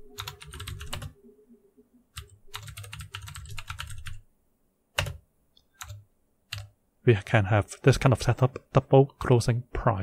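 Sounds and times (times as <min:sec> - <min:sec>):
typing on computer keyboard: 0:00.2 - 0:01.1, 0:02.2 - 0:04.2, 0:05.0 - 0:05.2, 0:05.8 - 0:06.7.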